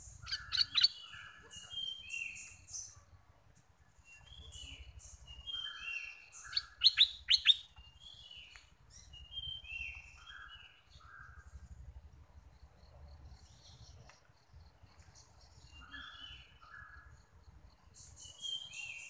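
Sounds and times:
bulbul singing: 0.0s - 3.0s, 4.1s - 11.4s.

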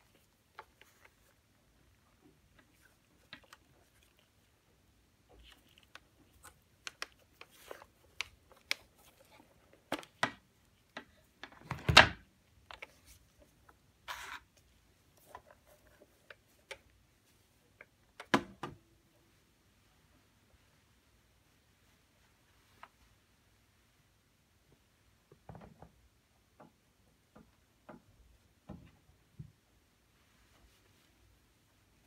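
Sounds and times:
handling clicks and rustles: 0.0s - 18.8s.

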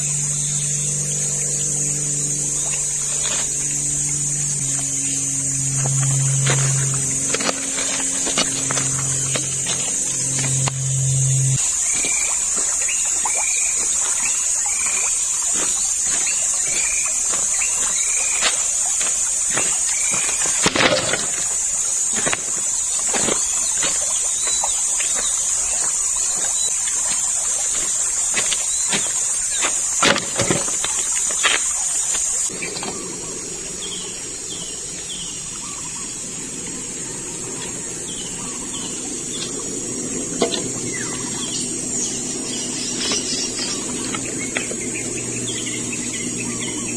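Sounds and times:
river flowing: 0.0s - 32.6s
insects droning: 0.0s - 46.9s.

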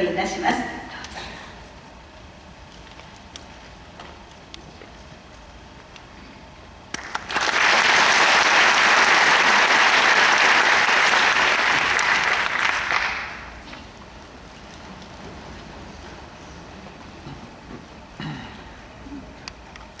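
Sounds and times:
audience applauding: 6.9s - 13.6s.

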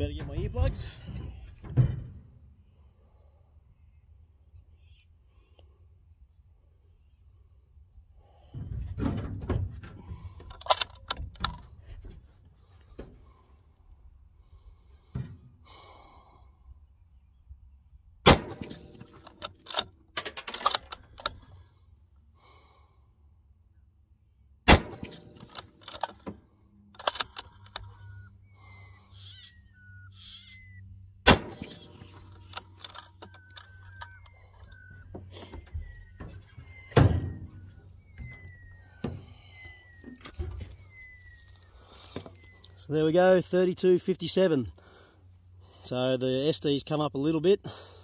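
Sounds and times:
bird chirping: 3.8s - 5.6s, 27.9s - 32.5s, 33.2s - 43.0s
rifle bolt clicks and clacks: 10.4s - 11.7s, 18.6s - 21.5s, 25.0s - 26.4s, 27.0s - 28.0s, 31.6s - 34.8s
rifle shots: 18.2s - 19.0s, 24.7s - 26.0s, 31.2s - 32.2s.

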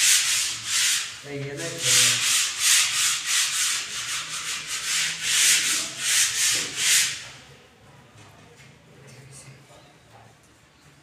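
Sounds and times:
sandpaper rubbing on plaster: 0.0s - 7.4s.

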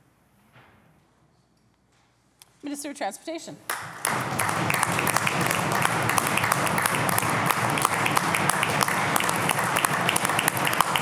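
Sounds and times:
many hands clapping: 3.7s - 11.0s.

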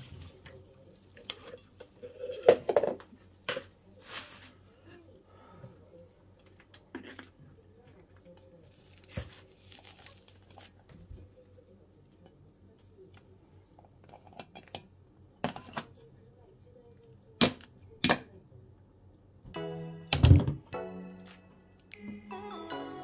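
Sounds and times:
music: 19.5s - 23.0s.

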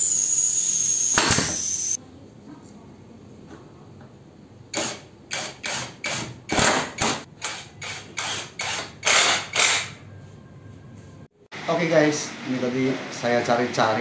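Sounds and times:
impact driver driving screws into wood: 4.7s - 9.9s.

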